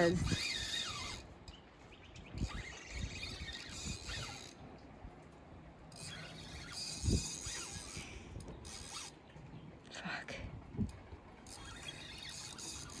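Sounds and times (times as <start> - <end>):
fishing reel whirring and clicking: 0.0 - 4.7, 5.8 - 9.2, 10.8 - 13.0.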